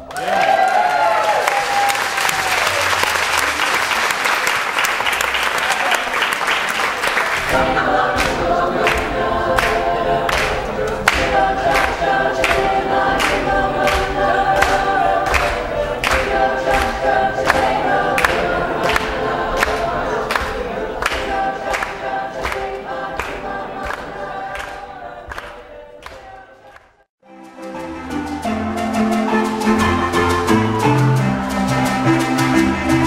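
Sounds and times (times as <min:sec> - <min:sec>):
people clapping a beat: 0:00.0 - 0:27.0, 0:29.0 - 0:33.0
group singing: 0:07.1 - 0:27.0.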